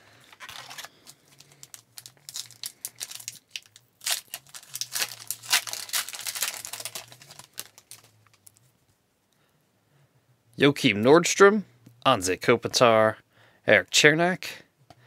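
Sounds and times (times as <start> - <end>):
foil wrapper tearing and crinkling: 0.2 - 8.6.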